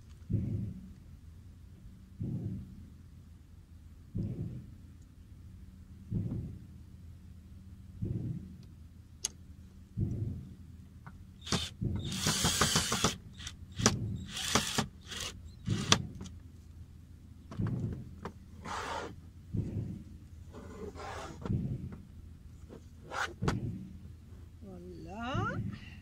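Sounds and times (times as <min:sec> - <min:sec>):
cordless drill drilling wood: 0:11.4 - 0:16.1
drill clicks: 0:11.4 - 0:16.3.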